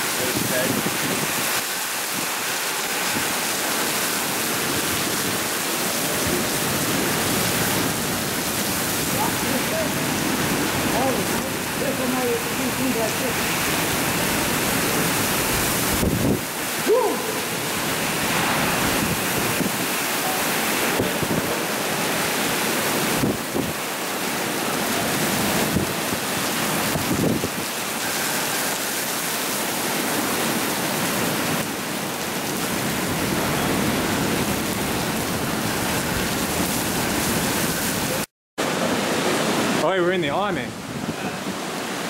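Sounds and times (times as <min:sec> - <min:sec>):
heavy wind-driven rain: 0:00.0 - 0:42.0
wind rushing: 0:12.9 - 0:22.5.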